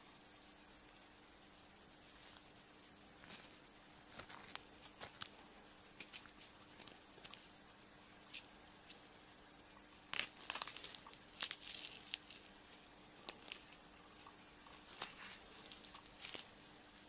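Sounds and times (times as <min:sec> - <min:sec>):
wrapper crinkling and tearing: 0:03.2 - 0:05.4, 0:10.1 - 0:13.8, 0:14.7 - 0:16.6.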